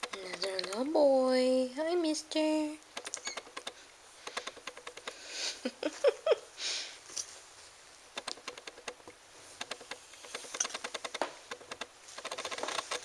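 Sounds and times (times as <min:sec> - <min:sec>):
clicking and rustling from handling: 0:00.0 - 0:00.9, 0:08.2 - 0:13.0
kitten squeaking: 0:03.1 - 0:03.6.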